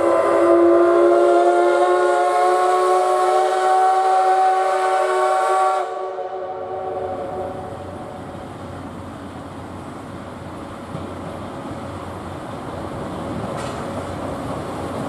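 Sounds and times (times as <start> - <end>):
steam whistle blast: 0.0 - 7.6
train running rumble: 0.0 - 15.0.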